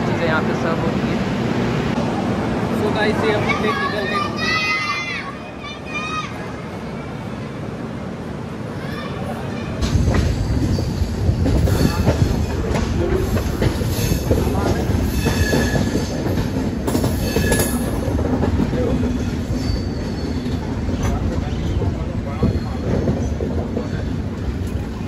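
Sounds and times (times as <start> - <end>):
train wheels clattering: 9.8 - 24.9
wheel squeals: 17.0 - 18.1, 19.1 - 20.7.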